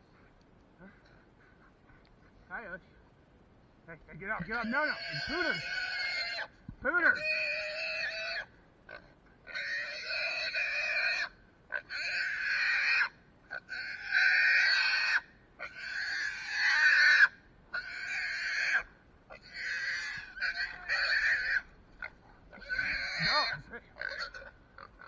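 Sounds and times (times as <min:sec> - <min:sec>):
hog squealing in distress: 0:04.6 - 0:08.5, 0:09.5 - 0:25.0.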